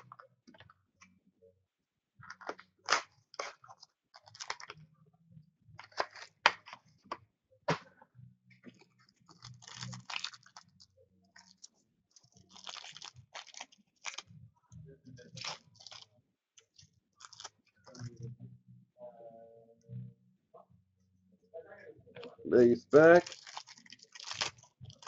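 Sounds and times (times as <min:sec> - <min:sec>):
wrappers tearing and crinkling: 0:02.3 - 0:04.8, 0:09.3 - 0:10.8, 0:11.4 - 0:14.3, 0:15.3 - 0:16.1, 0:16.7 - 0:18.1, 0:23.0 - 0:25.0.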